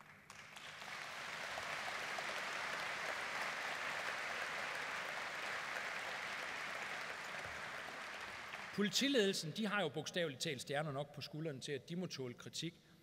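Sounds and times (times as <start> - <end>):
large audience applauding: 0.0 - 8.8.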